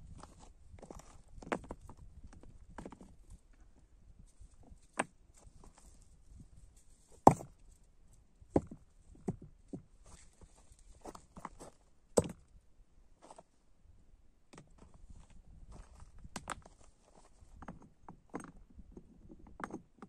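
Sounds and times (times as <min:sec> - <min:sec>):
stones clacking together: 0:07.2 - 0:07.5.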